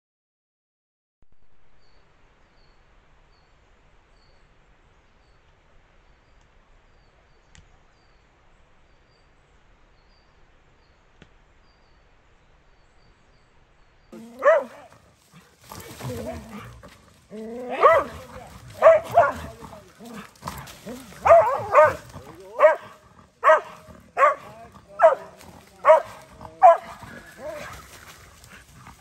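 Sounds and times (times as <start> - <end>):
faint outdoor hiss: 1.3 - 29.0
loud animal cry: 14.2 - 28.1.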